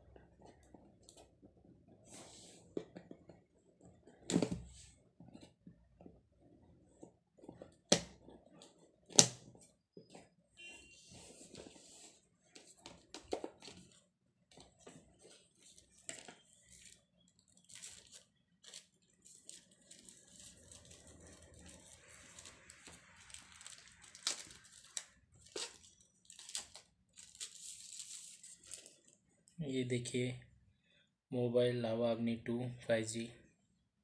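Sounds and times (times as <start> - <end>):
cardboard and paper rustling: 11.0 - 29.1.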